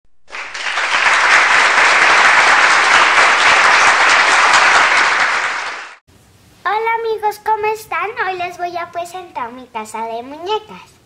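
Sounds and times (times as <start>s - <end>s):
crowd clapping: 0.2s - 6.0s.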